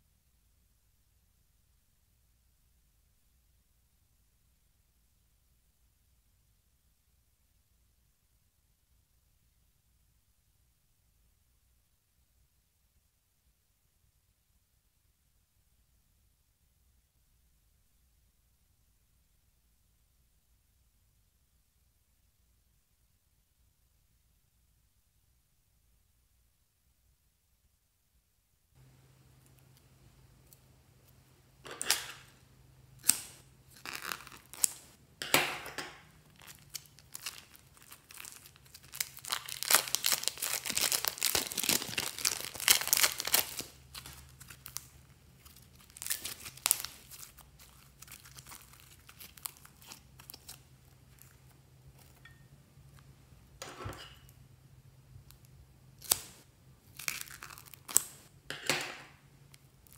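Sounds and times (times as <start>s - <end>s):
plastic bags crinkling: 36.2s - 52.2s.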